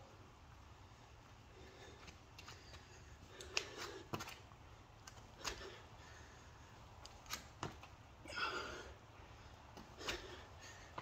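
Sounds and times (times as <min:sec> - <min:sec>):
man breathing hard: 0:00.7 - 0:04.4, 0:05.2 - 0:07.0, 0:08.2 - 0:11.0
sharp taps and scuffs: 0:01.8 - 0:05.8, 0:06.9 - 0:08.0, 0:09.7 - 0:11.0.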